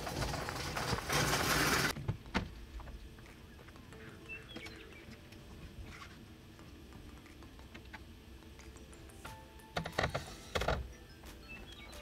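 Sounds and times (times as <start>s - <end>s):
faint bird chirps: 3.4s - 5.2s.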